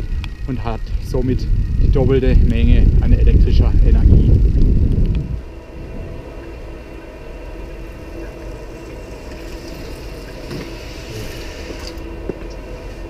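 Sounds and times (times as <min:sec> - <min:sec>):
steady low rumble: 0:00.0 - 0:13.0
bicycle tyres hissing on wet pavement: 0:09.0 - 0:12.0.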